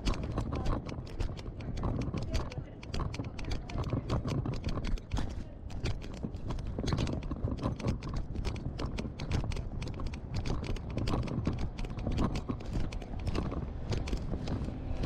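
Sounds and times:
handheld camera jostling: 0.0 - 15.0.

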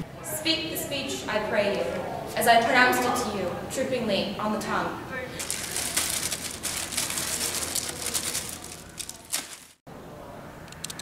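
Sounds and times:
plastic bag crinkling: 5.4 - 9.8.

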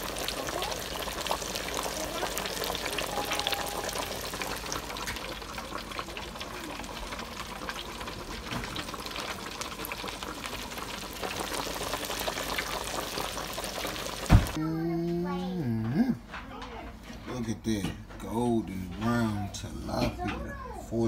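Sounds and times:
oil sizzling in deep fryer: 0.0 - 14.6.

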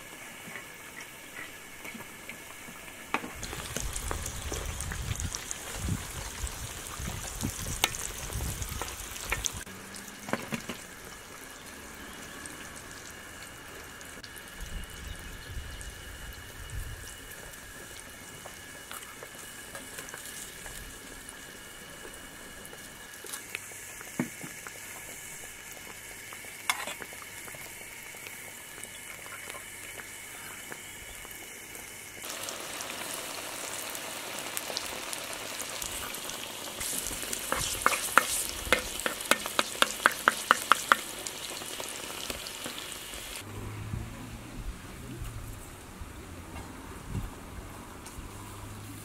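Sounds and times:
dough frying in hot oil: 0.0 - 43.5.

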